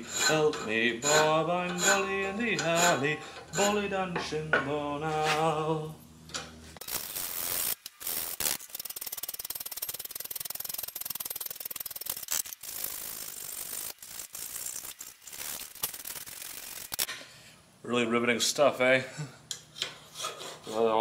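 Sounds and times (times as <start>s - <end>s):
file rasping on metal: 0.0s - 4.0s, 19.8s - 21.0s.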